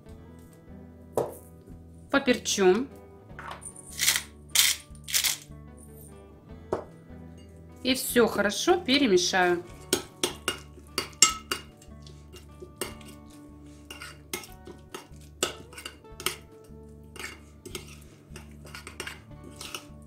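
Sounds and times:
metal spoon scraping ceramic bowl: 0:09.8 - 0:16.5, 0:17.1 - 0:20.0.

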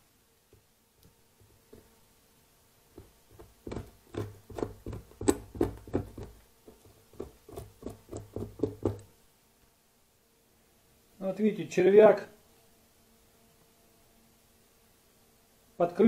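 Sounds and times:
tweezers tapping and scratching wax: 0:02.9 - 0:09.1.

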